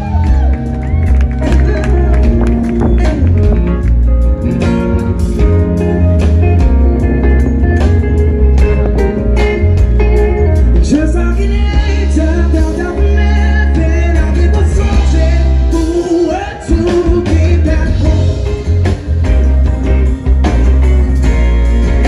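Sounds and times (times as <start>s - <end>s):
bass: 0.0s - 22.0s
drum kit: 0.0s - 22.0s
electric guitar: 0.0s - 22.0s
keyboards: 0.0s - 22.0s
male singer: 1.3s - 3.8s, 10.7s - 19.2s.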